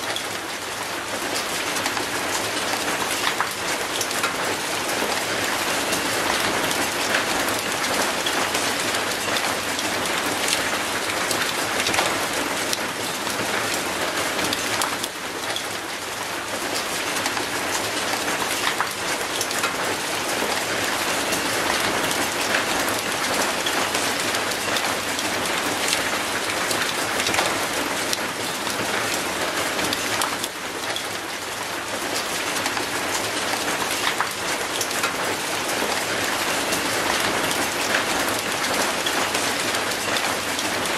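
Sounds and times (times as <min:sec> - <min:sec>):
heavy rain on concrete: 0:00.0 - 0:40.9
raindrops ticking on metal gate: 0:00.0 - 0:40.9.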